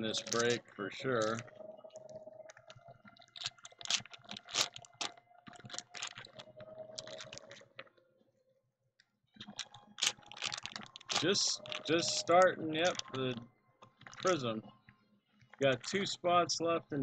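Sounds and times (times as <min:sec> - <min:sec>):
cards being handled: 0:00.1 - 0:01.4
foil wrappers crinkling: 0:00.1 - 0:01.5, 0:02.5 - 0:07.8, 0:09.4 - 0:13.4, 0:14.0 - 0:14.4, 0:15.5 - 0:16.1.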